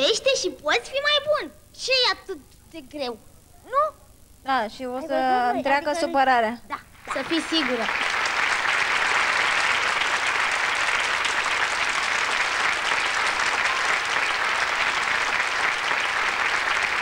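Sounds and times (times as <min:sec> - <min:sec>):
children clapping: 0:07.0 - 0:17.0.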